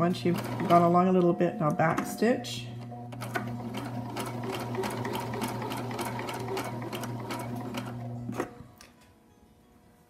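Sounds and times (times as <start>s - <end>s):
sewing machine motor hum: 0.0s - 1.2s, 2.7s - 8.6s.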